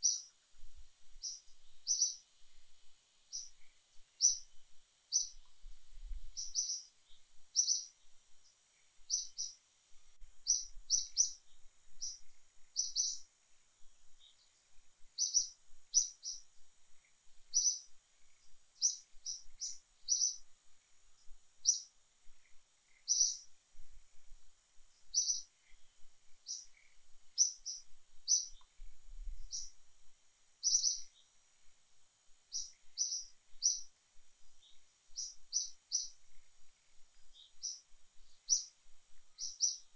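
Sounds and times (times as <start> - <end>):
bird chirping: 0.0 - 0.4, 1.2 - 2.3, 3.3 - 5.5, 6.3 - 9.6, 10.4 - 13.3, 14.1 - 20.9, 21.6 - 23.6, 25.0 - 28.8, 29.4 - 29.8, 30.6 - 31.4, 32.5 - 39.9
faint high-pitched hiss: 0.0 - 39.9.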